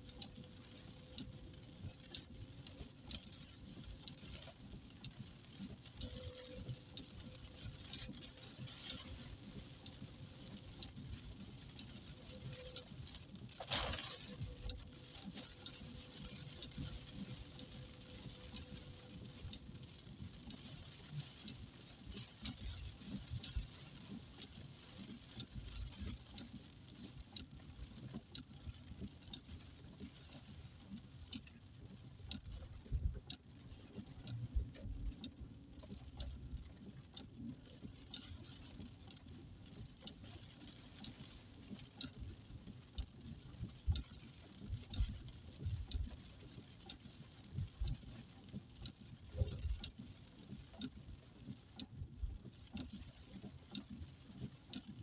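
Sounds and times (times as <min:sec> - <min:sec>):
rain on car windscreen: 0:00.0 - 0:55.0.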